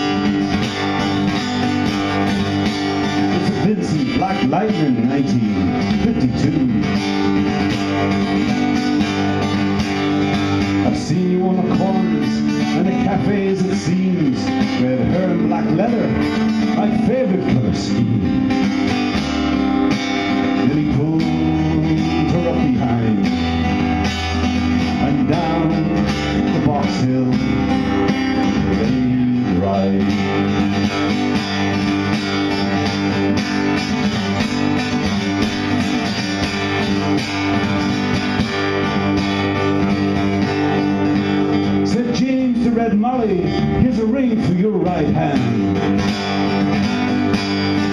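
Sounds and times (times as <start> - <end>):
man singing: 0.0 - 18.9, 19.8 - 32.2, 41.5 - 47.1
acoustic guitar folk song: 0.0 - 47.9.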